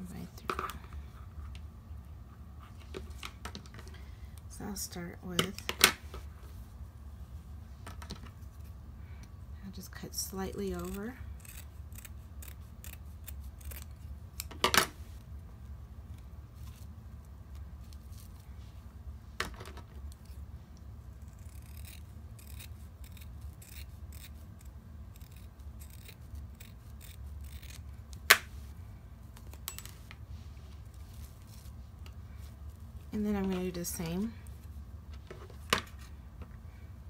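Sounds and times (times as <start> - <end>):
scissors snipping fabric: 21.1 - 28.4.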